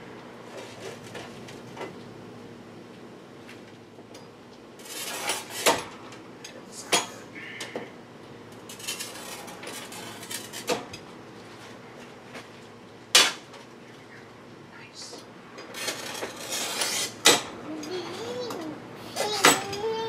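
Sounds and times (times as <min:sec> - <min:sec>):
cutting head sliding on rails: 0:15.6 - 0:17.5.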